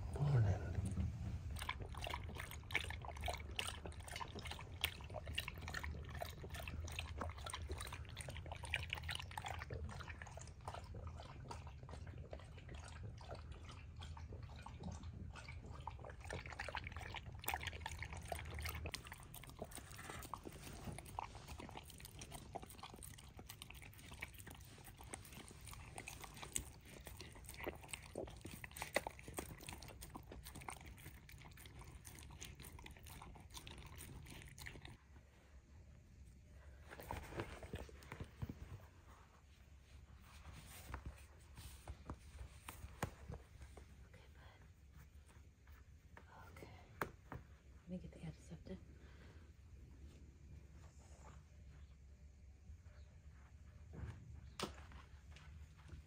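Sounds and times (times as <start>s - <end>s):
dog lapping and chewing: 0.0s - 35.0s, 36.9s - 39.2s, 54.5s - 56.0s
low background hum: 0.0s - 56.0s.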